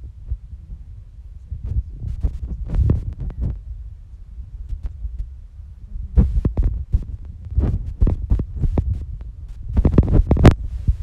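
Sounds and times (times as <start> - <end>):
low thumps: 1.5 - 3.9, 6.0 - 11.0.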